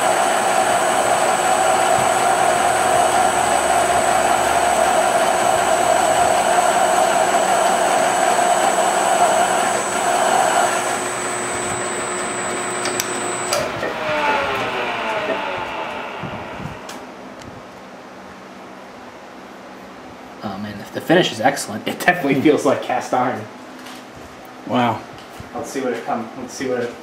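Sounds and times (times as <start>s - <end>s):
metal lathe cutting: 0.0s - 17.2s.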